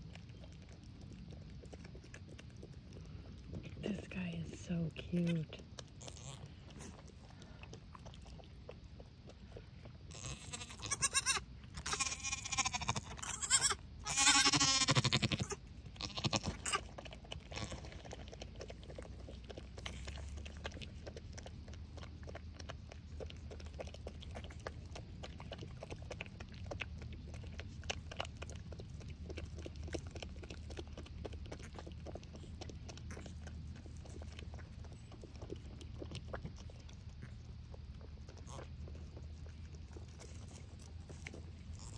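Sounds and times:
faint low rumble: 0:00.0 - 0:41.9
goat bleating: 0:06.0 - 0:06.4, 0:10.1 - 0:16.8, 0:17.5 - 0:17.8.

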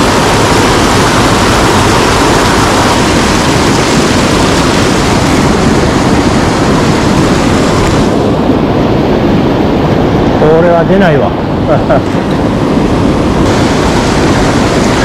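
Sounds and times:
stream water rushing: 0:00.0 - 0:08.3, 0:11.7 - 0:15.0.

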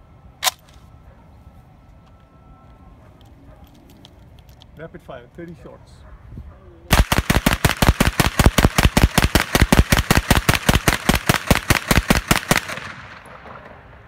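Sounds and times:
submachine gun rapid fire: 0:06.9 - 0:13.3.

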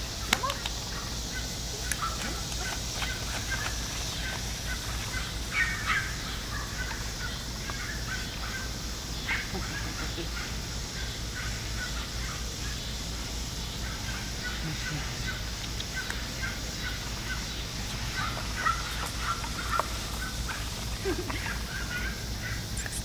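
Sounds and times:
steady low hum: 0:00.0 - 0:23.0
puppies squeaking and whimpering: 0:16.9 - 0:23.0.

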